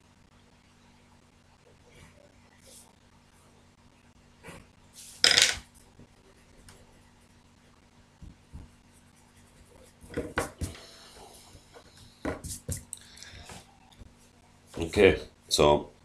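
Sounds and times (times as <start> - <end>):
pencil on paper: 8.5 - 10.8.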